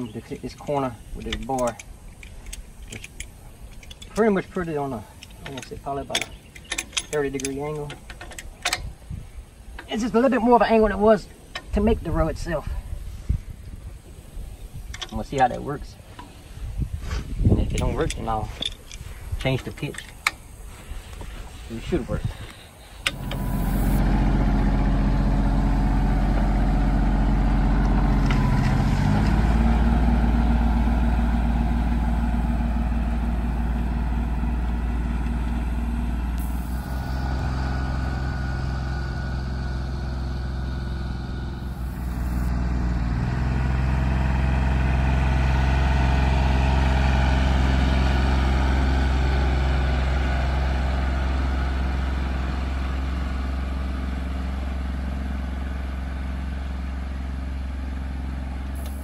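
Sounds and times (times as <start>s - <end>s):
tractor engine running under load: 17.3s - 59.0s.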